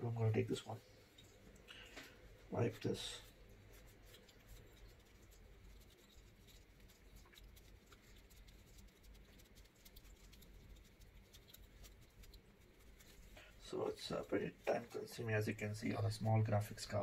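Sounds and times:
tissue rustling on plastic fan: 0:00.7 - 0:15.7
small ticks: 0:03.2 - 0:13.5.

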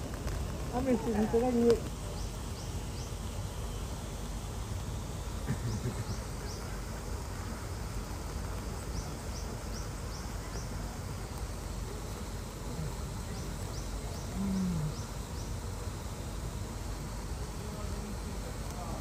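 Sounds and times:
steady low hum: 0:00.0 - 0:19.0
small bird chirping: 0:13.3 - 0:15.6.

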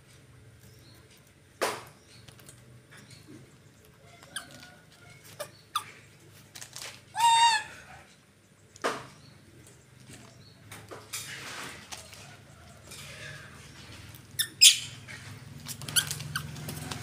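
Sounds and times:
monkey squealing: 0:07.2 - 0:07.8, 0:14.4 - 0:15.1, 0:15.7 - 0:17.0.

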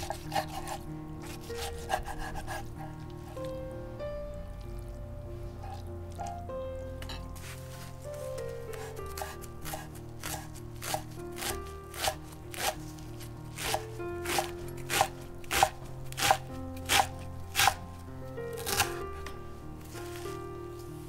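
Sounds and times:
knife chopping on wooden board: 0:00.0 - 0:02.7, 0:08.7 - 0:12.8, 0:13.6 - 0:17.8, 0:18.6 - 0:18.9.

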